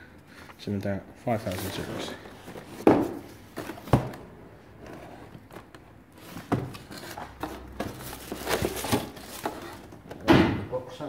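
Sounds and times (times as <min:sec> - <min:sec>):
cardboard packaging rustling: 0:01.3 - 0:10.1.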